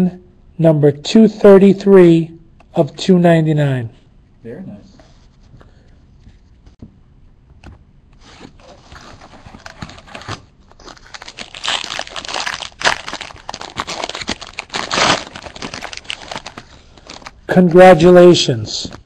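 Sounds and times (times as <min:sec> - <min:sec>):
foil wrapper crinkling and tearing: 0:08.9 - 0:17.4.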